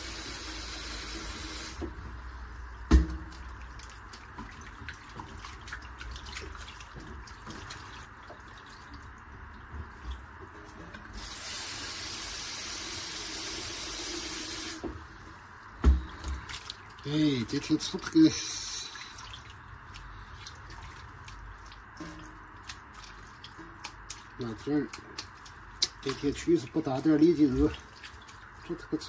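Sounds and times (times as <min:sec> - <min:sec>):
tap water running into a bowl: 0:00.0 - 0:02.0, 0:02.9 - 0:15.0
wet splashes of hands kneading meat: 0:02.1 - 0:10.4, 0:16.0 - 0:29.0.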